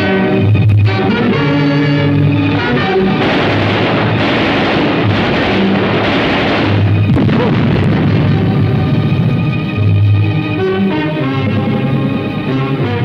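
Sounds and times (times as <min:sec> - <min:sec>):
film background music: 0:00.0 - 0:13.0
explosion rush: 0:02.5 - 0:11.6.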